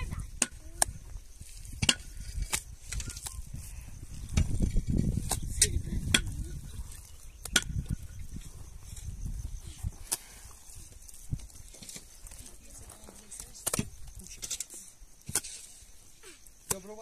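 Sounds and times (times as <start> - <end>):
wind rumble on microphone: 0.0 - 11.7.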